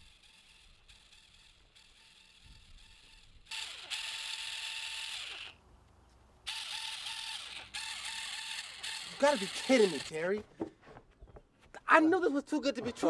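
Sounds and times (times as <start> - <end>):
small saw buzzing: 0.0 - 5.6, 6.4 - 10.4.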